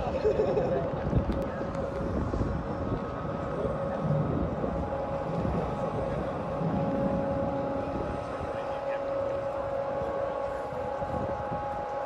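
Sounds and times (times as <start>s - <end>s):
ship machinery rumble and hum: 0.0s - 12.0s
steady held tones: 3.3s - 12.0s.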